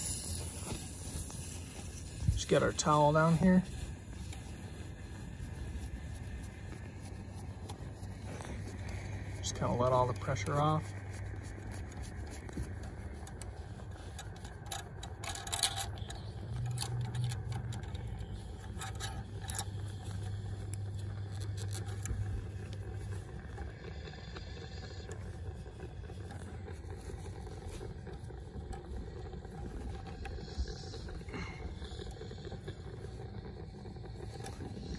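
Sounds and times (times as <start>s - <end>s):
steady low hum: 0.0s - 34.9s
hand scraping and clicking fitting: 5.9s - 23.6s.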